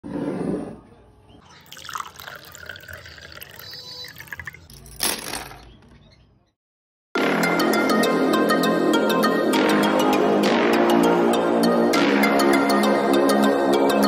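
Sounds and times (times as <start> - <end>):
water pouring into a glass: 1.5 - 4.7.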